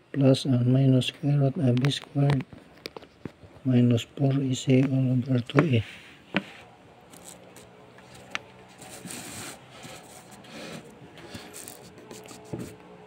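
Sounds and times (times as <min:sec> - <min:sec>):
paper rubbing and scraping: 0:05.8 - 0:12.8.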